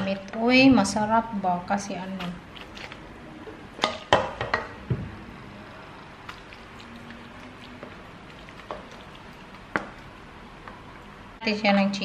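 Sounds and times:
soft wet squishing of sauce: 2.2s - 3.9s, 6.0s - 11.2s.

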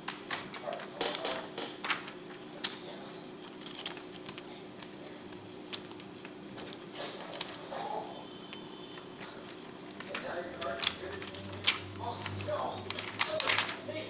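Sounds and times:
plastic clicks and crinkling: 3.4s - 7.5s, 8.5s - 13.8s.

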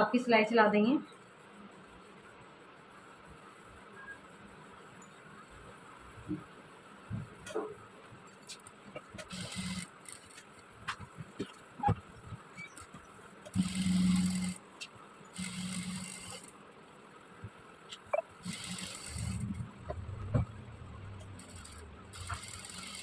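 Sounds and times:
sewing machine running: 9.2s - 10.4s, 13.5s - 14.6s, 15.4s - 16.5s, 18.4s - 20.2s, 21.2s - 23.0s.

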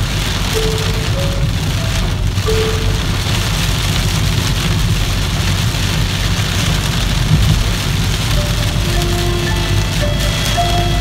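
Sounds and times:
rain hitting windscreen: 0.0s - 11.0s
tyres on wet road and engine: 0.0s - 11.0s.

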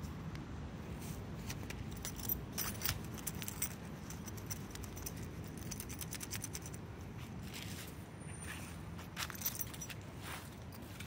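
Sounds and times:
light jangling clicks: 1.7s - 7.1s, 9.2s - 10.1s.

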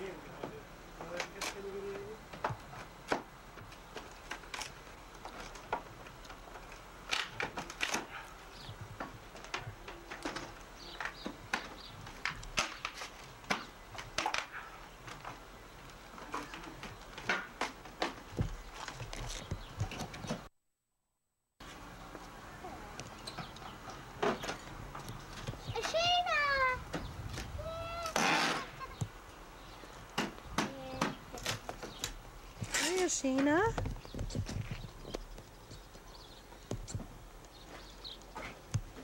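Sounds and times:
pry bar cracking wood: 2.8s - 8.2s, 9.0s - 20.4s.

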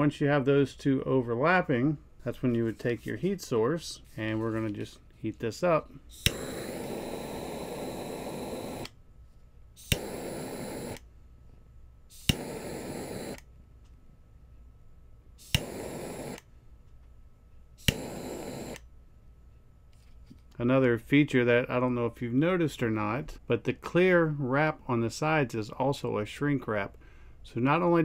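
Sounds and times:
jet flame hissing: 5.6s - 9.0s, 9.8s - 11.1s, 12.1s - 13.5s, 15.4s - 16.5s, 17.8s - 18.8s
torch lighter igniter click: 6.1s - 9.0s, 9.8s - 11.0s, 12.2s - 13.5s, 15.4s - 16.5s, 17.8s - 18.8s.

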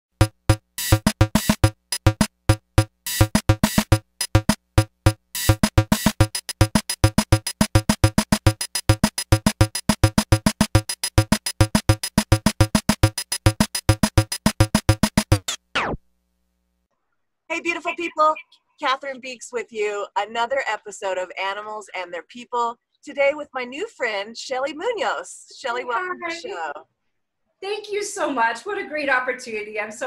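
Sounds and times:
electronic staccato theme music: 0.1s - 16.0s, 17.6s - 18.6s.

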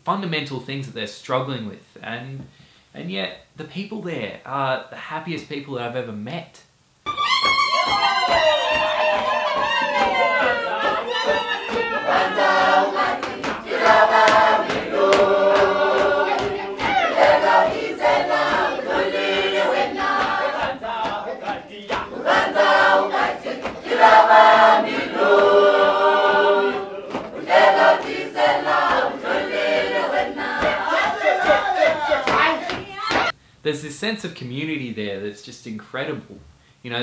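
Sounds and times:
short sharp beats: 7.1s - 33.4s
choir singing: 8.0s - 33.3s.

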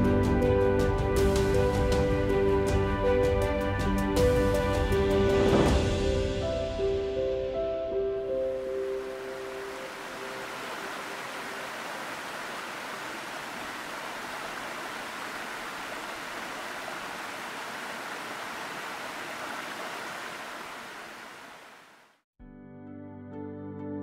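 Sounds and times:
waterfall roaring: 8.8s - 22.2s.

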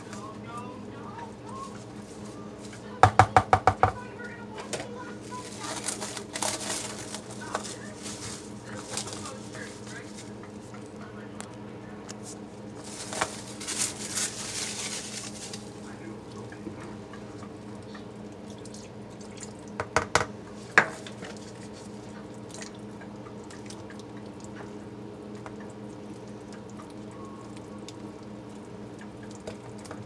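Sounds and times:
steady low hum: 0.0s - 30.0s
cling wrap crinkling: 5.1s - 10.7s, 12.1s - 16.0s.

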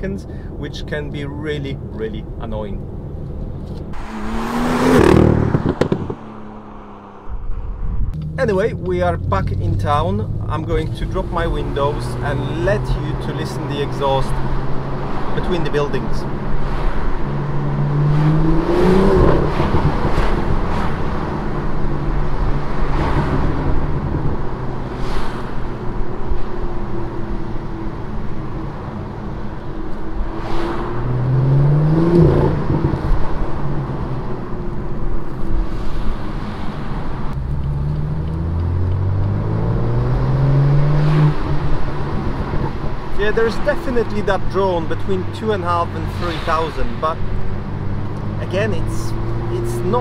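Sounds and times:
car exhaust note: 4.0s - 12.6s.

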